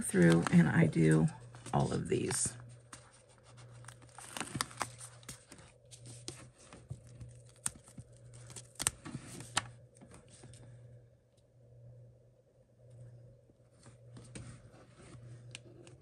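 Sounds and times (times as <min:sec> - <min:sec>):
paper rustling and crinkling: 0:00.0 - 0:10.6.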